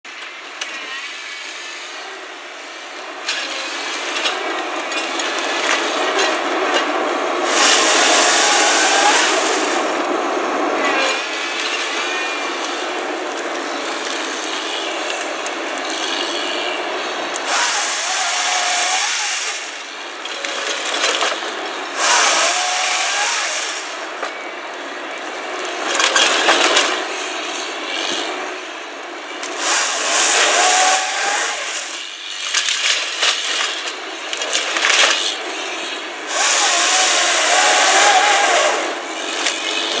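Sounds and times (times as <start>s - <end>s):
harvester machine noise: 0.1s - 40.0s
saw bursts with rising whine: 7.4s - 10.0s, 15.8s - 20.4s, 21.8s - 24.3s, 29.5s - 32.0s, 36.3s - 40.0s.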